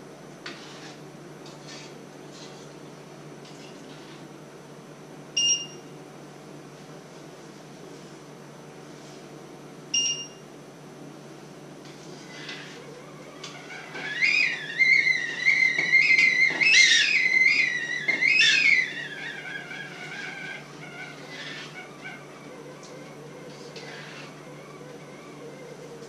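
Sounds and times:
stovetop kettle whistling: 0:13.9 - 0:19.6.

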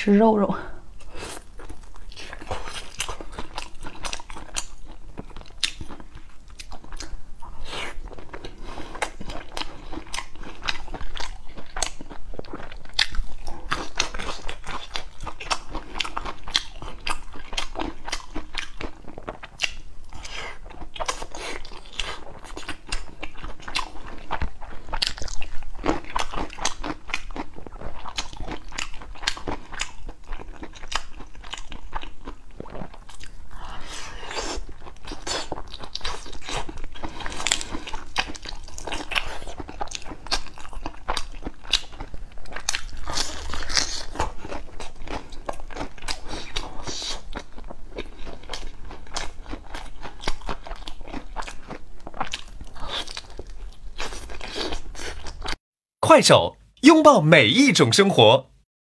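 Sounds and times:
person chewing food close up: 0:00.9 - 0:55.6.

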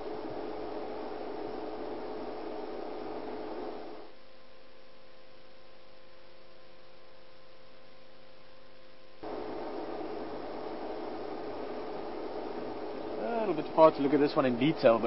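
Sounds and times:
open-air hiss: 0:00.0 - 0:15.0
steady electrical hum: 0:00.0 - 0:15.0.

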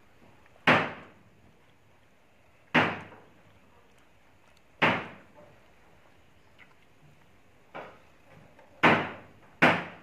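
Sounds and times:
sharp knocks: 0:00.6 - 0:01.2, 0:02.7 - 0:03.2, 0:04.8 - 0:05.5, 0:08.8 - 0:10.0.

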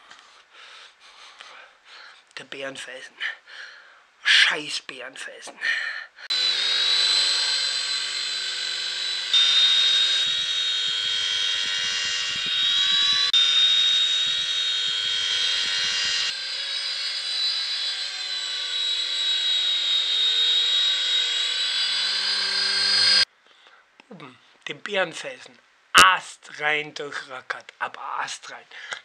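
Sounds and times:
remote-control helicopter motors whining: 0:06.3 - 0:23.3.

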